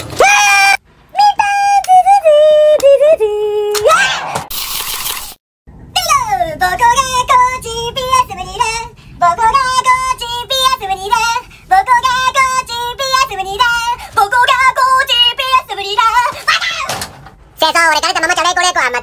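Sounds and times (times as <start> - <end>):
high-pitched voice singing: 0.2 - 4.0, 17.6 - 19.0.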